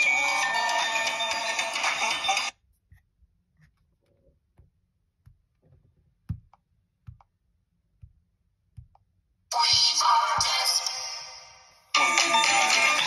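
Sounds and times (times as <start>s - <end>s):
fingertips tapping touchscreen: 6.2s - 11.0s.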